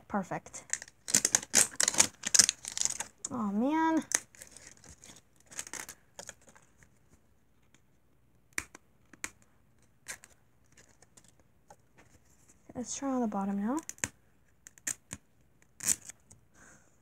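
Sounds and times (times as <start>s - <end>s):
fingernails scratching wrapper: 0.6s - 3.3s, 4.1s - 6.7s, 13.9s - 16.4s
wrapper crinkling: 0.6s - 3.3s, 4.0s - 6.8s.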